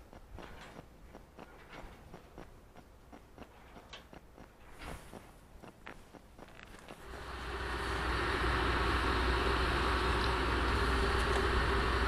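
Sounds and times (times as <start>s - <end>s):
faint ticks: 0.0s - 7.1s
train rumble and hiss: 7.0s - 12.0s.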